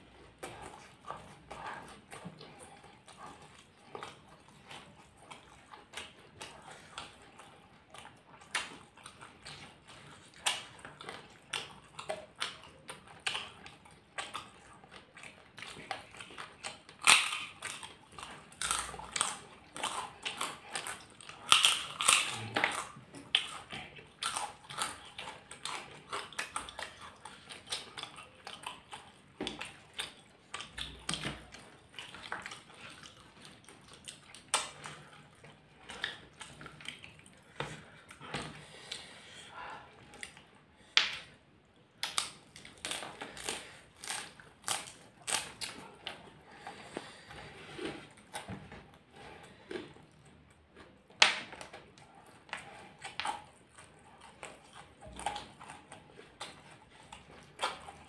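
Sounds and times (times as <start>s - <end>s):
people chewing food: 0.0s - 58.0s
crunching of fried crackers: 0.2s - 39.1s, 42.0s - 48.6s.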